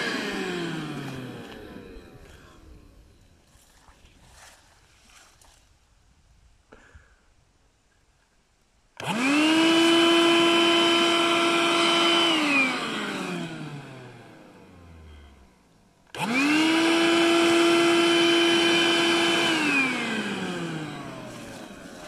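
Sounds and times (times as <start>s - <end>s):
cordless vacuum motor whine: 0.0s - 3.2s, 9.0s - 22.0s.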